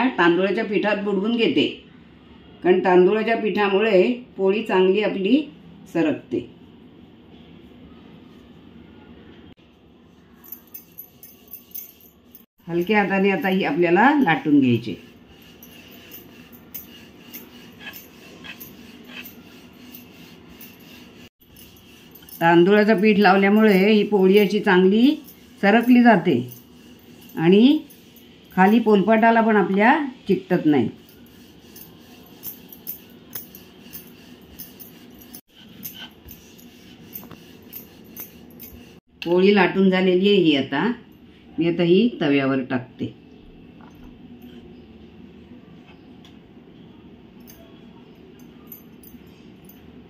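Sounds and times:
rolling pin rubbing on dough: 12.8s - 39.1s.

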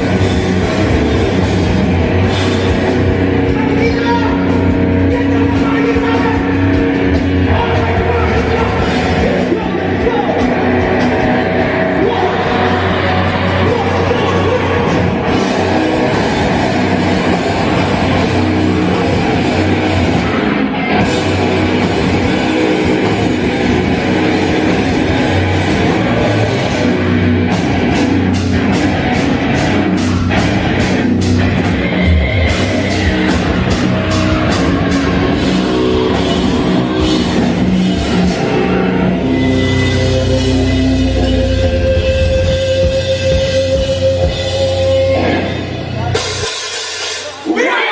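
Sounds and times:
metal band playing: 0.0s - 47.9s.

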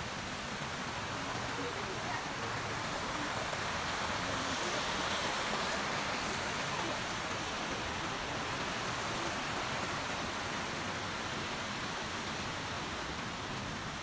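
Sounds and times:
stream rushing over rocks: 0.0s - 14.0s.

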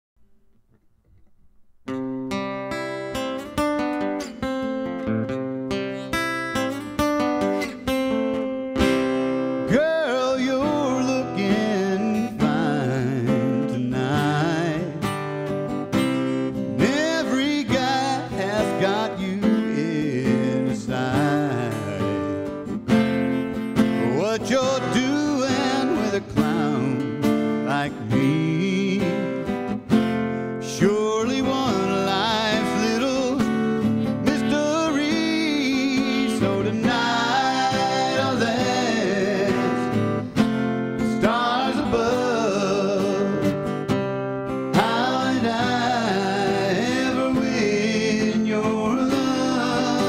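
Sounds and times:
acoustic guitar: 0.2s - 50.0s
man singing: 9.6s - 15.2s, 16.7s - 22.7s, 24.0s - 29.7s, 30.6s - 40.4s, 41.0s - 43.8s, 44.7s - 50.0s.

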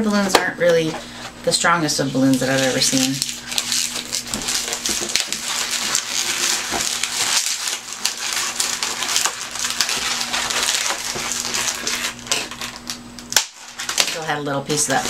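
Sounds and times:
balloons rubbing and squeaking: 2.1s - 12.6s.

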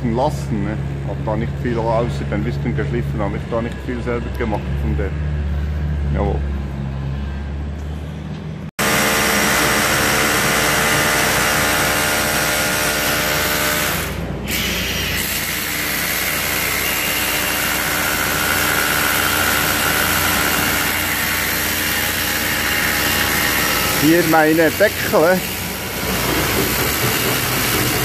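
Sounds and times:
electric paddle mixer whining: 8.8s - 28.0s.

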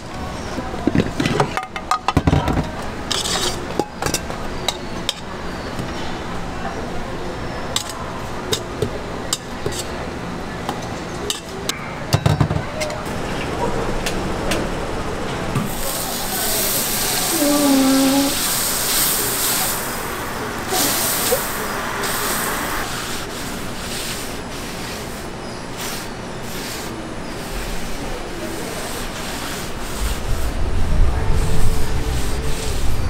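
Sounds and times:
cooking utensils scraping: 0.3s - 6.2s, 7.7s - 10.0s
steady hiss: 15.7s - 33.0s.

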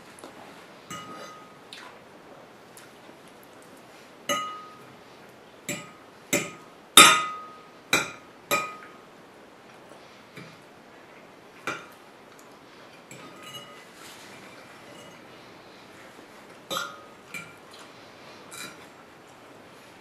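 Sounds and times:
fork clinking on ceramic plate: 13.1s - 13.8s.

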